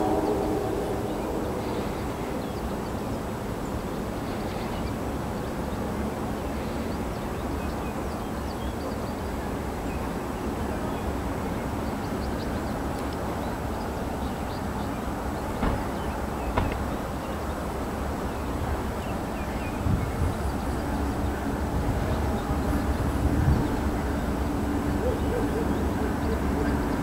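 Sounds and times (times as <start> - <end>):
sharp knock: 15.6 - 15.9.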